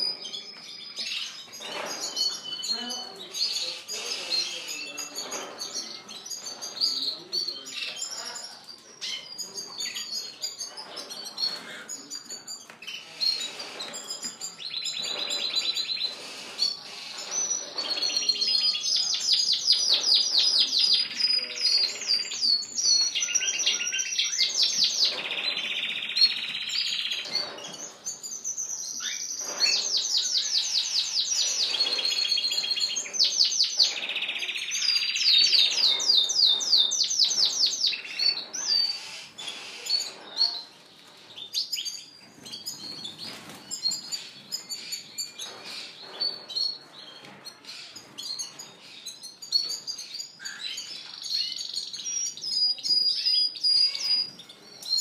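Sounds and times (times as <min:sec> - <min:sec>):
canaries singing trills: 0:00.0 - 0:55.0.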